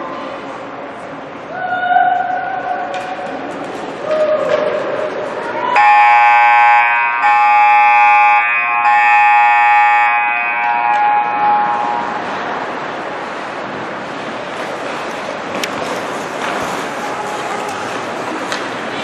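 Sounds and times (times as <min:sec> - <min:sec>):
electric horn blaring: 0:05.8 - 0:12.4.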